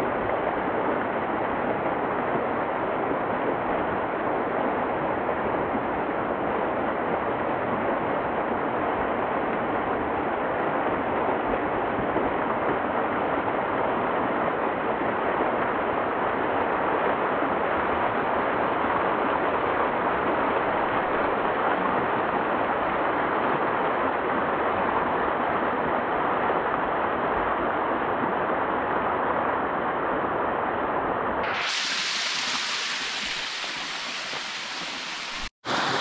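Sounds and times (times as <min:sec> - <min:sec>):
waterfall rushing: 0:31.4 - 0:36.0.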